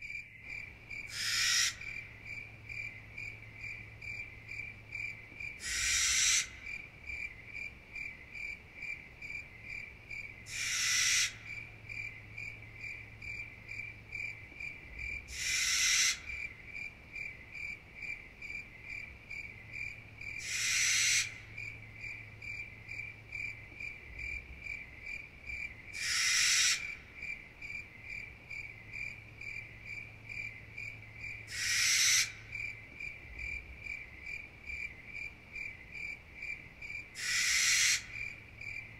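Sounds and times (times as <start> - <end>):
crickets chirping: 0.0 - 38.9.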